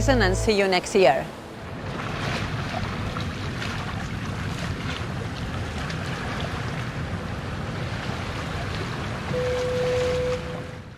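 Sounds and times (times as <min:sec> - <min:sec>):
sea waves breaking on shore: 0:00.7 - 0:10.9
wind rumbling on microphone: 0:01.4 - 0:10.9.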